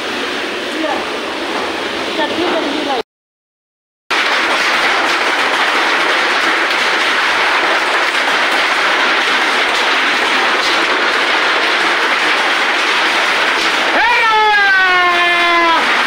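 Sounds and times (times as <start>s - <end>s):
heavy rain: 0.0s - 3.0s, 4.1s - 16.0s
hailstones ticking: 4.1s - 16.0s.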